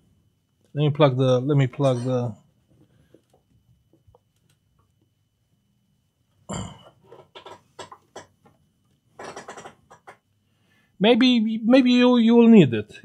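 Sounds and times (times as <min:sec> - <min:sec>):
knocks and rustles of handling: 0:07.0 - 0:10.3.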